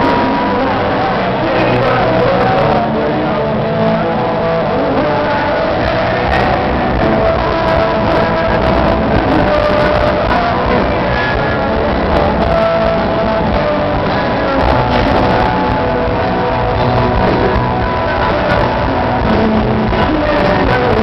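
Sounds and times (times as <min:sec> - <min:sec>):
drum kit: 0:00.0 - 0:21.0
electric guitars: 0:00.0 - 0:21.0.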